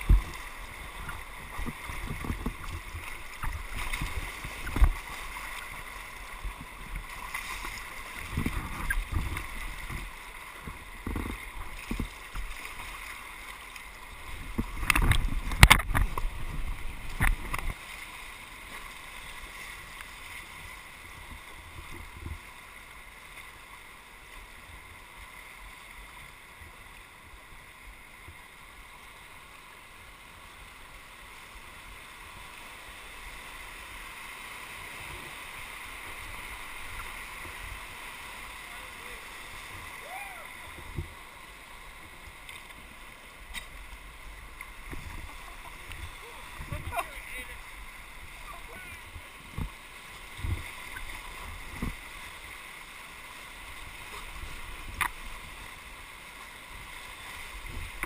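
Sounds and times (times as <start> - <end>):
splashes and thumps: 14.4 - 17.8
rapids rushing: 32.0 - 58.0.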